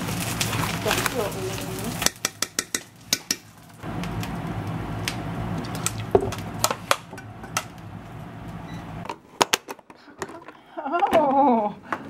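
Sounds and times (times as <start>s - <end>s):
steady low hum: 2.9s - 9.1s.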